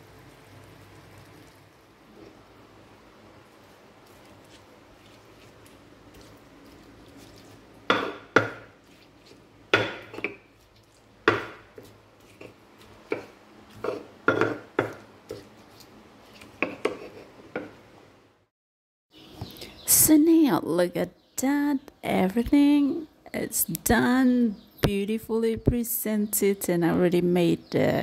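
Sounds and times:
stone pestle knocking in mortar: 0:07.9 - 0:08.7, 0:09.7 - 0:10.4, 0:11.2 - 0:11.8, 0:13.1 - 0:15.0.

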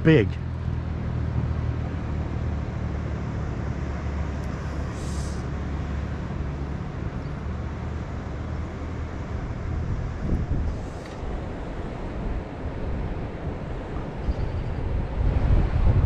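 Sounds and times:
low outdoor rumble: 0:00.0 - 0:16.0
brief high hiss: 0:04.9 - 0:05.5.

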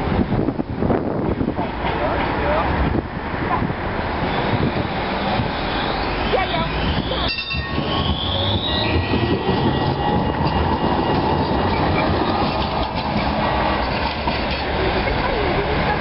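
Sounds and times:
tram wheels rumbling on rail: 0:00.0 - 0:16.0
thin high tones: 0:05.6 - 0:09.8.

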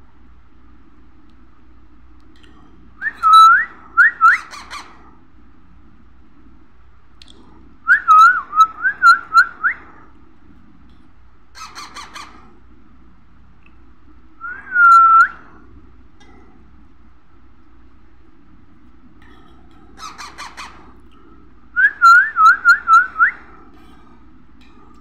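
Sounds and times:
parakeet chick squawking: 0:04.3 - 0:05.0, 0:11.5 - 0:12.5, 0:20.0 - 0:20.9.

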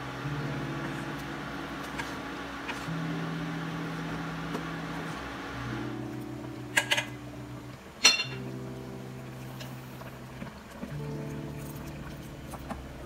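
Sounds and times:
spoon clinking on metal pot: 0:08.0 - 0:08.4.

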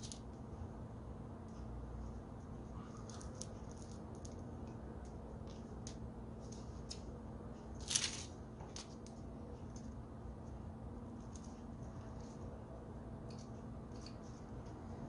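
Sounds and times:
low steady hum: 0:00.0 - 0:15.0
small clicks and rustles of wire: 0:02.9 - 0:07.1.

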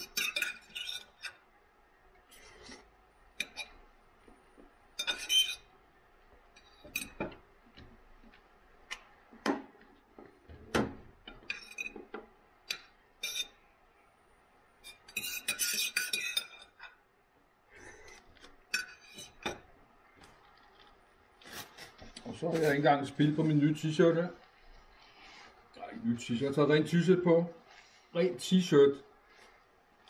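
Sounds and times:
knife and fork scraping on plate: 0:00.0 - 0:01.4, 0:05.0 - 0:05.7, 0:13.2 - 0:13.6, 0:14.8 - 0:16.8, 0:17.9 - 0:19.6.

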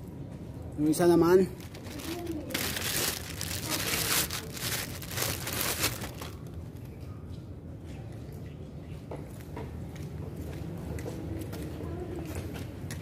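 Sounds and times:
plastic wrapping crinkling: 0:01.5 - 0:06.6.

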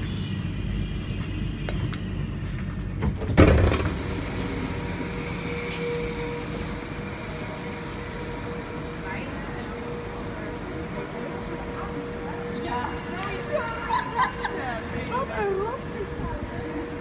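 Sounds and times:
train interior rumble: 0:00.0 - 0:17.0
sliding door opening: 0:03.0 - 0:04.9.

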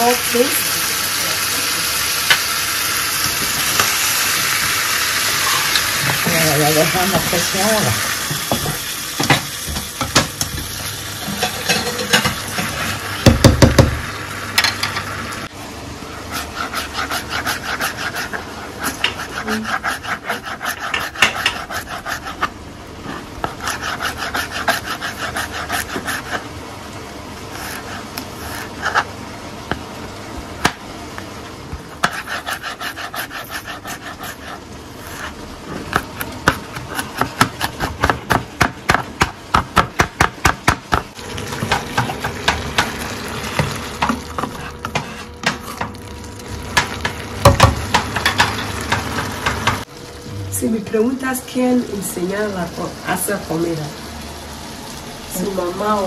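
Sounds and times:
food sizzling in a pan: 0:00.0 - 0:35.9, 0:41.1 - 0:56.0
spatula stirring: 0:16.3 - 0:22.5, 0:23.1 - 0:26.5, 0:32.0 - 0:35.4
knife chopping on cutting board: 0:32.0 - 0:34.5, 0:35.1 - 0:41.1.

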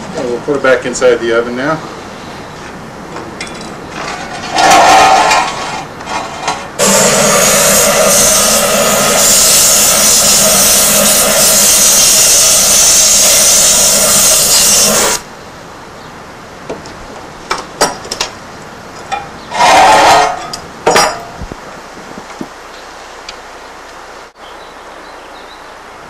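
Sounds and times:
gas torch hissing: 0:06.8 - 0:15.3.

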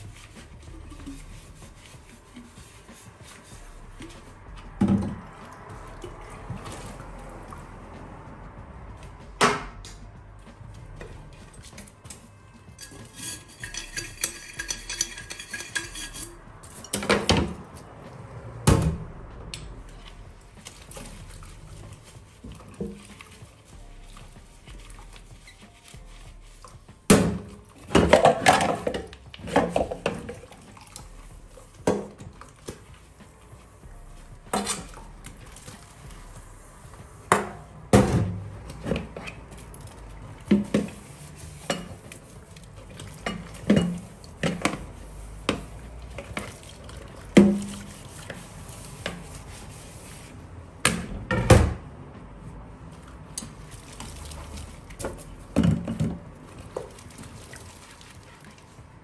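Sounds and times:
dishes clinking in metal sink: 0:12.8 - 0:17.6, 0:27.2 - 0:30.4, 0:41.6 - 0:42.1, 0:43.0 - 0:44.8.

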